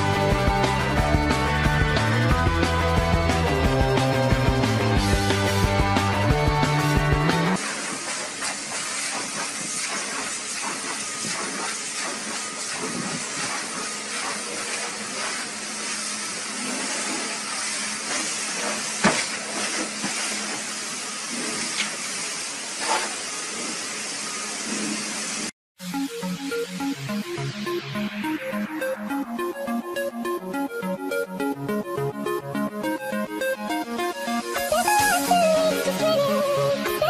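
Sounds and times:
pressure washer spray hissing: 7.6 - 25.5.

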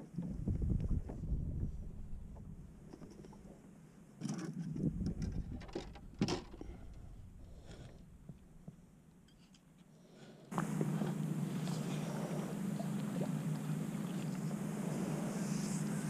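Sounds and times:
knocks and rattles on a boat: 0.0 - 3.6, 4.2 - 7.1
low rumble: 4.8 - 8.9, 10.6 - 16.0.

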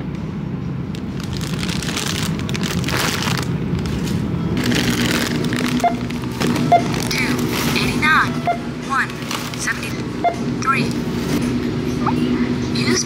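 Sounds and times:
shopping cart rolling and rattling: 1.2 - 8.2, 8.9 - 9.9.

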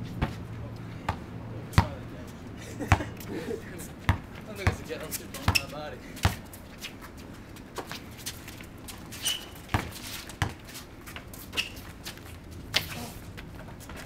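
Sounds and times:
basketball bouncing on concrete: 1.0 - 2.0, 2.9 - 3.2, 4.0 - 6.5, 7.8 - 11.3
high squeaks: 5.4 - 5.8, 9.1 - 10.1, 11.5 - 11.9.

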